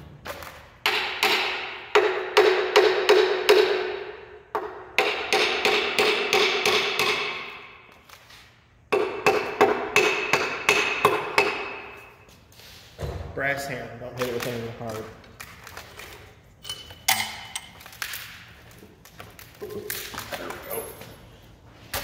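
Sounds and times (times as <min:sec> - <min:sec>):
hammer striking metal: 0:00.8 - 0:07.8, 0:08.9 - 0:12.2.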